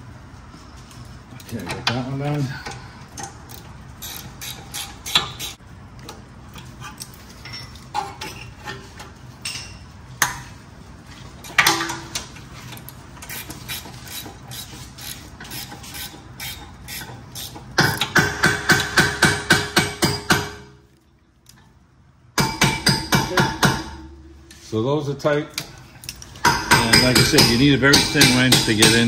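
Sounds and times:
sharp metal clanks: 26.2s - 29.0s.

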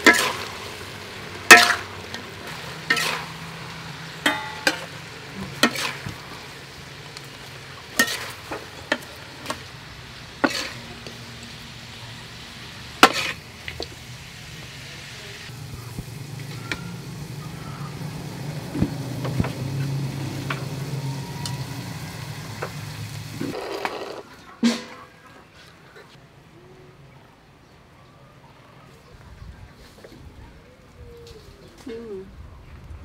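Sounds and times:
ladle clinking against a wok: 4.2s - 4.9s.

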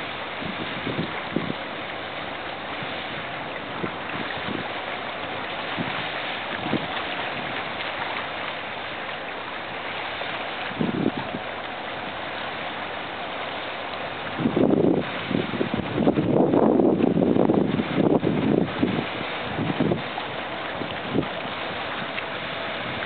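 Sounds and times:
wind buffeting microphone: 0.0s - 1.7s, 2.7s - 7.7s, 10.6s - 11.5s, 14.2s - 23.0s
rushing wind and water: 0.0s - 23.0s.

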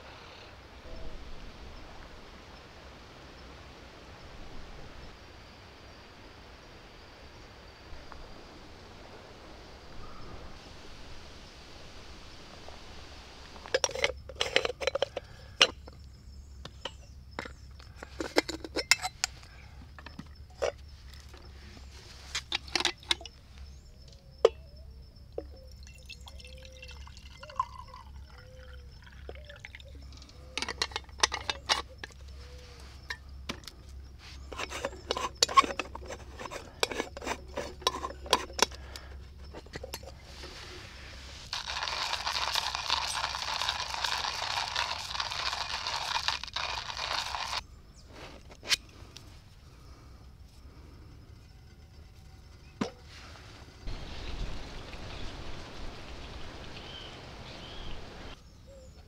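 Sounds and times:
metal clinks of pot parts: 13.7s - 16.0s, 16.8s - 19.4s, 25.4s - 32.2s, 34.5s - 40.2s
water pouring and gurgling: 25.7s - 32.1s, 41.3s - 47.6s
hand coffee grinder grinding: 34.5s - 38.7s, 41.4s - 47.6s.

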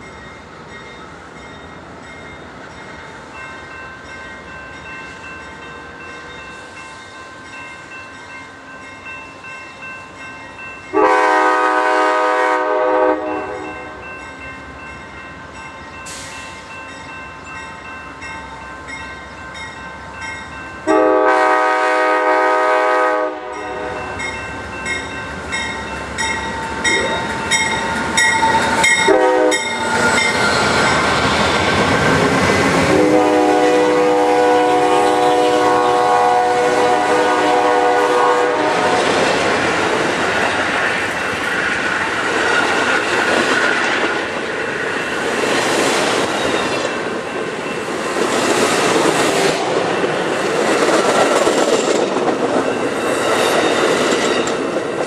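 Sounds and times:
train rumble and wheel clatter: 0.0s - 55.0s
train horn blasts: 10.9s - 14.0s, 20.8s - 24.2s, 29.0s - 29.8s, 32.8s - 39.2s.

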